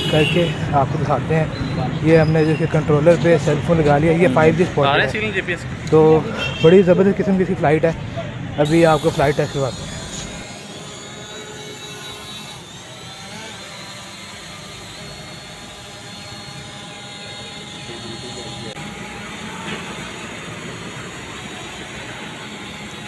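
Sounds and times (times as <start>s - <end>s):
drone propellers whining: 8.7s - 23.0s.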